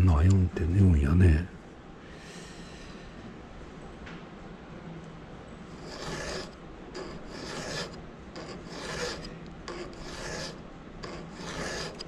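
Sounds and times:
hand file on chainsaw cutter: 5.8 - 12.0.

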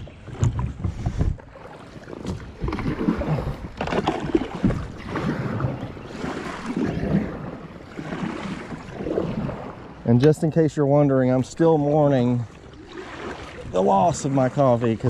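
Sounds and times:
kayak paddle splashing water: 0.0 - 15.0.

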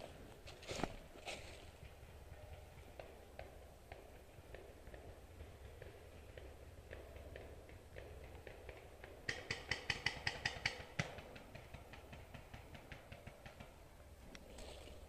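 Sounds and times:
footsteps crunching dry leaves: 0.0 - 1.8.

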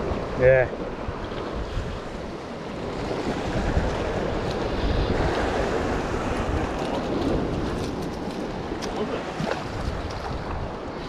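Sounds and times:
surf against rocks: 0.0 - 11.0
wind buffeting microphone: 0.0 - 11.0.

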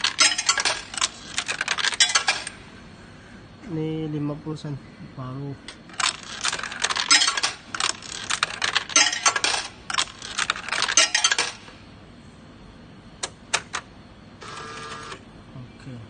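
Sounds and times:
coins clattering through coin changer: 0.0 - 2.6, 5.9 - 11.7.

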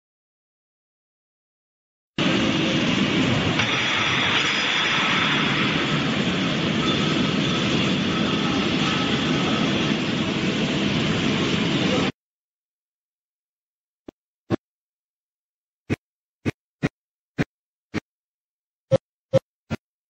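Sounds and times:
faint machine whine: 2.2 - 12.1.

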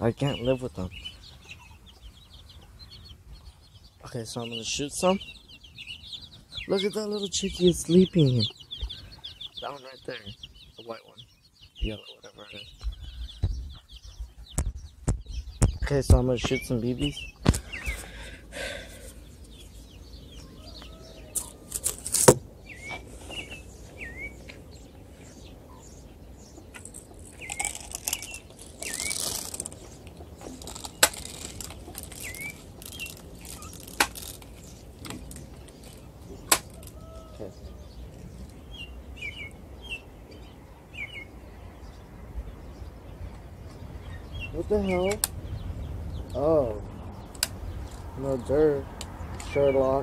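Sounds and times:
small birds chirping: 0.0 - 50.0
brief rustle: 21.4 - 23.6.

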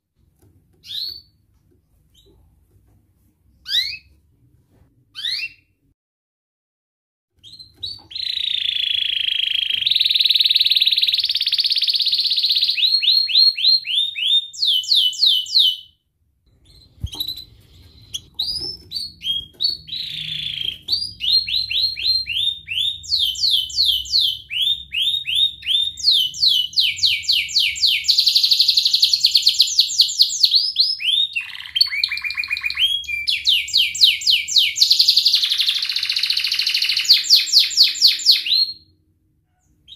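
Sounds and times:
canary singing trills: 0.8 - 1.4, 3.6 - 4.1, 7.4 - 15.9, 16.5 - 38.9.

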